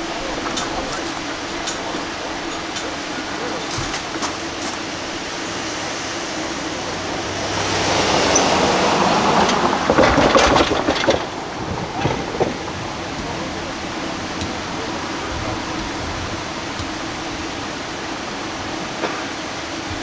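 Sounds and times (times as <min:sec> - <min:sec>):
car driving past: 0:05.9 - 0:10.5.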